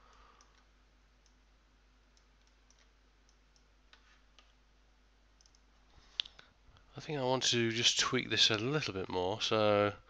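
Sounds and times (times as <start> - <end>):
computer mouse clicks: 2.2 - 4.6, 5.4 - 6.4.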